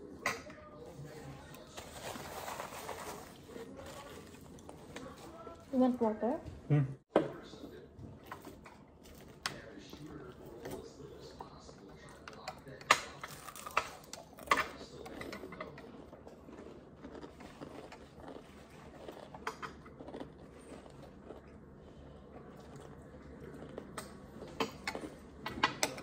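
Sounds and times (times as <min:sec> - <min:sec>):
chewing crispy fried chicken: 0:07.5 - 0:26.0.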